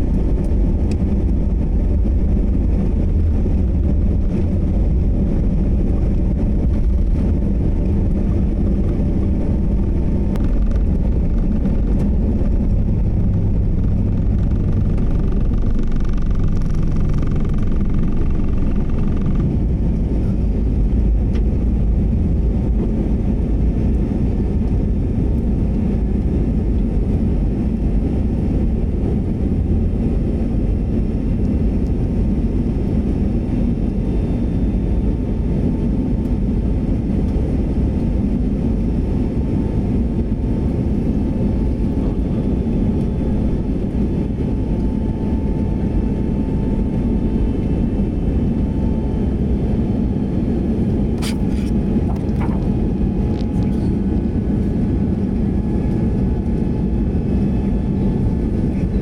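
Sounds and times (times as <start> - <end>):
faint steady whine: 0.0 - 59.0
jet engines rumbling in cabin: 0.0 - 59.0.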